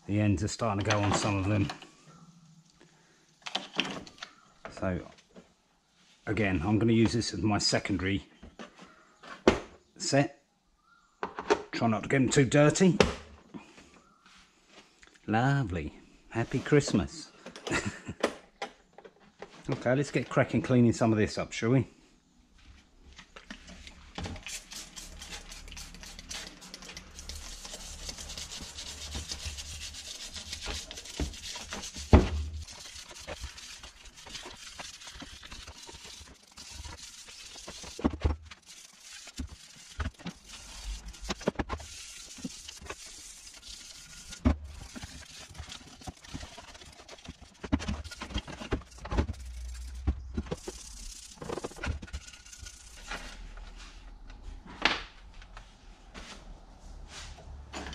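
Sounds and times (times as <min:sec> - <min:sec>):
brush scrubbing metal: 0:24.2 - 0:53.5.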